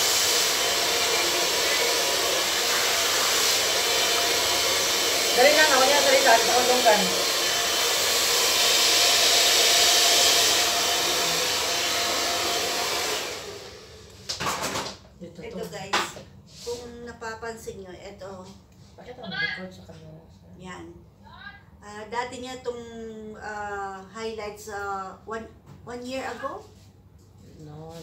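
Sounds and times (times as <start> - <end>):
hair dryer blowing: 0.0 - 14.2.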